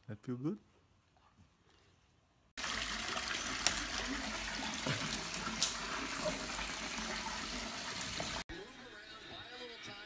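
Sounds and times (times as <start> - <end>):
water running from tap: 2.6 - 8.5.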